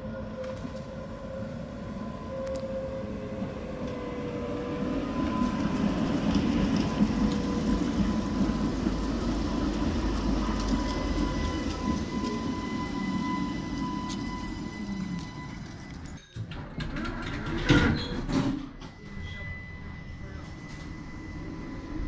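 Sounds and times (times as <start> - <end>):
tram wheels rumbling on rails: 0.0 - 22.0
tram whine: 0.0 - 22.0.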